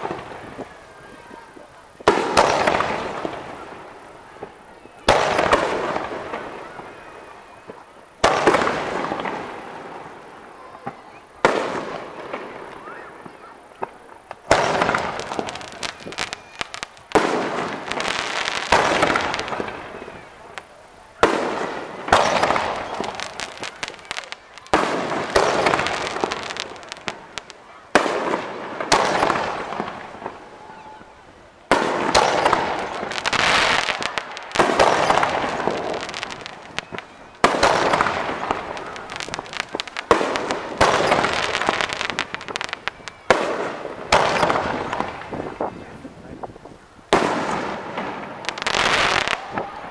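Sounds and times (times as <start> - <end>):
firework crackling: 0.0 - 49.9
firework shells bursting: 10.9 - 30.5, 31.7 - 45.6.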